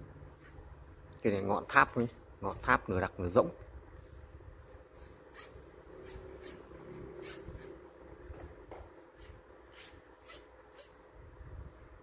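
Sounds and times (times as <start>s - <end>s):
fingers rubbing fishing rod: 9.2s - 11.0s.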